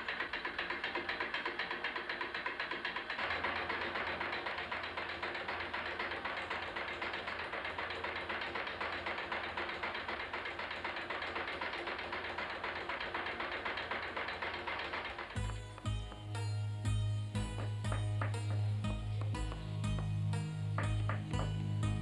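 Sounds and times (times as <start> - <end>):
sewing machine stitching: 0.0 - 16.2.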